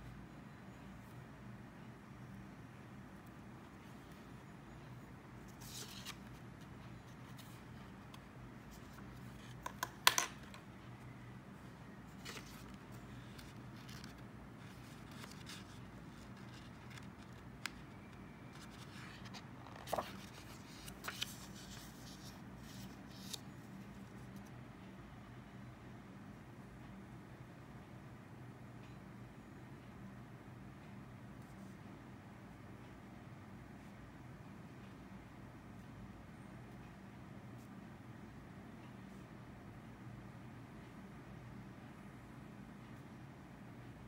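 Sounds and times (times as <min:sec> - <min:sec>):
low room hum: 0:00.0 - 0:44.0
paper rustling: 0:05.5 - 0:06.4, 0:12.1 - 0:17.8, 0:18.5 - 0:23.4.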